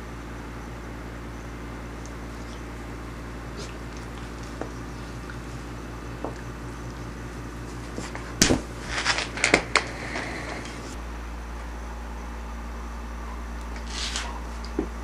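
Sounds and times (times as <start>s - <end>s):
low hum: 0.0s - 15.0s.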